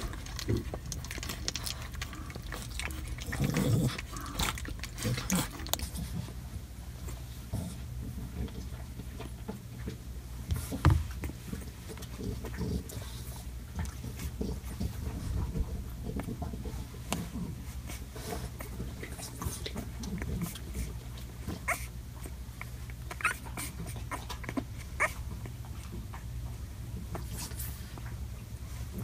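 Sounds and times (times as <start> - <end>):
puppies snuffling: 0.0 - 29.0
steady low hum: 0.0 - 29.0
puppies squeaking: 21.6 - 22.0, 22.6 - 25.7.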